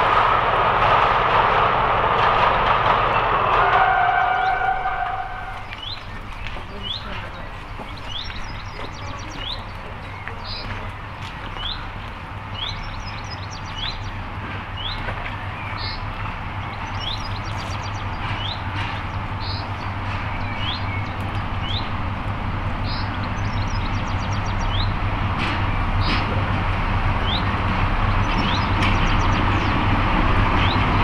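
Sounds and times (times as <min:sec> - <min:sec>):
diesel locomotive engine drone: 0:00.0 - 0:31.0
birds chirping and trilling: 0:03.9 - 0:22.1, 0:22.8 - 0:26.3, 0:27.2 - 0:31.0.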